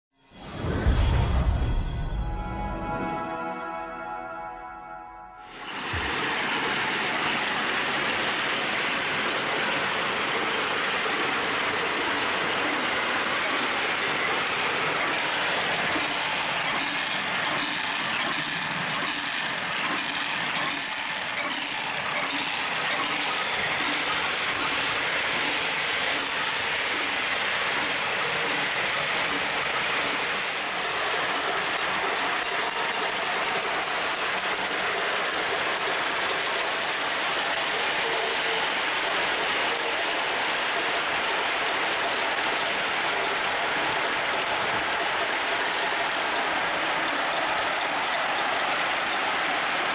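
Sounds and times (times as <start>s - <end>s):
glass marbles clattering on wooden tracks: 5.8s - 43.3s.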